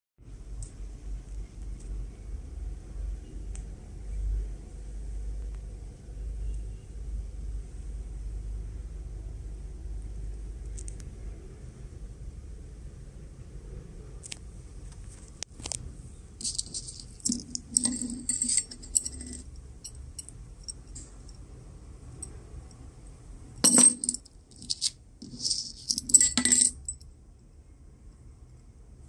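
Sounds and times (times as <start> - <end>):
metal chains clinking: 16.4 - 21.4, 23.6 - 27.0.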